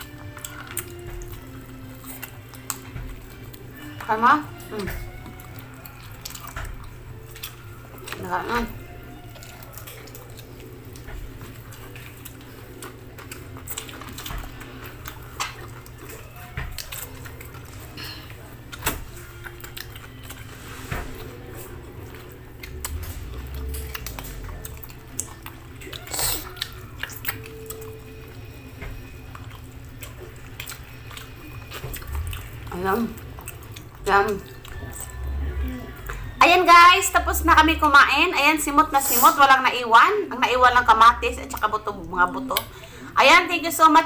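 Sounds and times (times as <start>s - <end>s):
chewing and mouth smacks: 0.0s - 36.4s.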